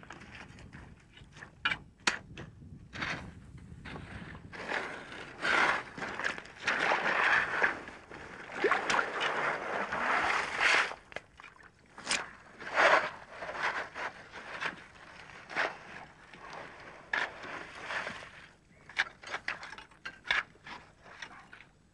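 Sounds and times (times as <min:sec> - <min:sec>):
digging tool crunching gravel: 0:04.5 - 0:08.1.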